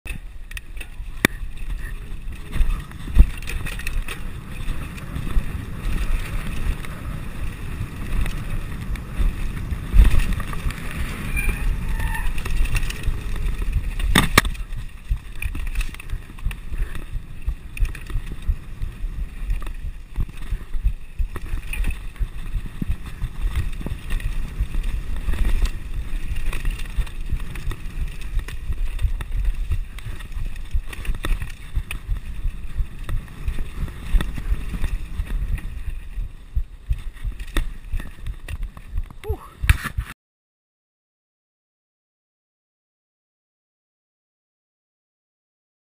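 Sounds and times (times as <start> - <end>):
mountain bike tyres rumbling: 0.1 - 40.2
bike knocking over bumps: 12.3 - 40.0.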